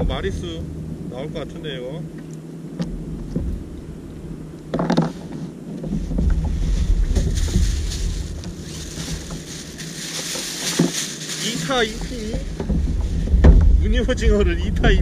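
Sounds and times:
wind on microphone: 0.0s - 15.0s
plastic bag crinkling: 6.6s - 12.9s
thump: 12.6s - 13.8s.

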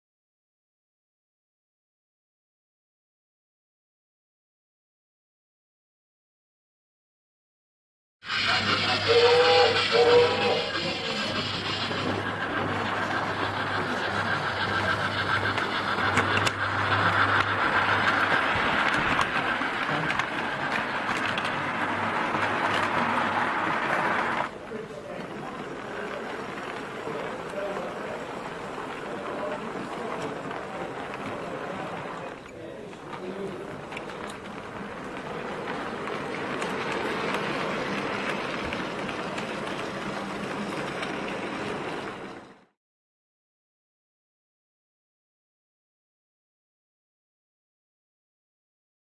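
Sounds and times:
model train motor whirring: 8.2s - 42.6s.

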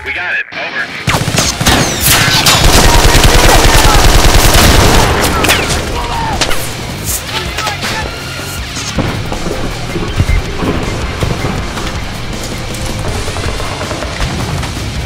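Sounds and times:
automatic rifle gunfire: 1.1s - 5.6s.

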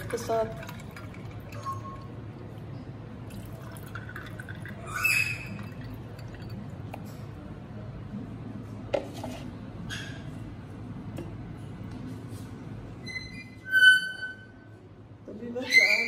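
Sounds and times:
liquid pouring over ice: 0.0s - 2.6s, 3.2s - 7.2s.

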